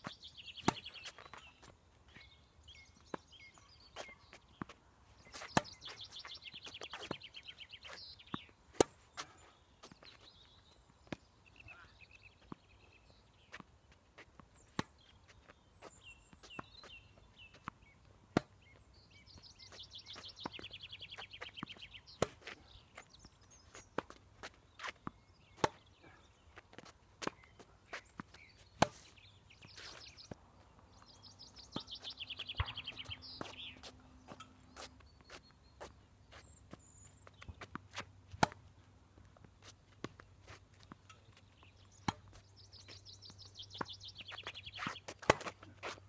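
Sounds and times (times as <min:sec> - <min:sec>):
tennis ball off rackets: 0:04.0 - 0:10.3, 0:13.4 - 0:18.7, 0:20.2 - 0:30.7, 0:31.7 - 0:41.4, 0:42.0 - 0:42.4, 0:43.8 - 0:46.0
ball bouncing on hard court: 0:32.6 - 0:33.5.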